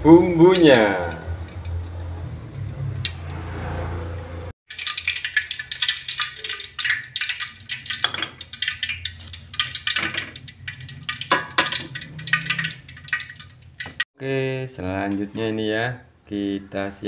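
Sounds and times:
hot oil crackling and sizzling: 4.7 - 14.0.

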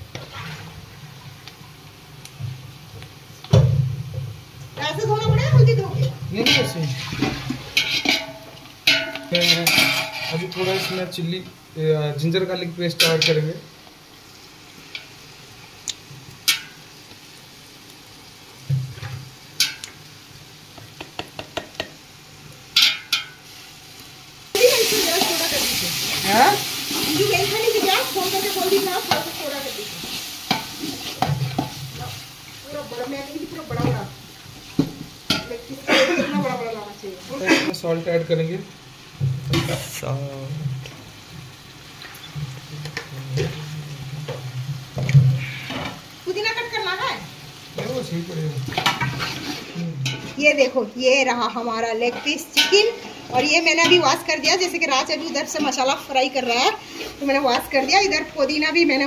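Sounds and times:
salt hissing in hot pot: 0.0 - 13.0, 13.6 - 50.6, 55.7 - 59.0
onions sizzling in oil: 0.0 - 59.0
utensils clinking against metal pot: 6.4 - 6.9, 7.7 - 11.2, 22.8 - 23.4, 50.0 - 50.4, 52.0 - 54.2.

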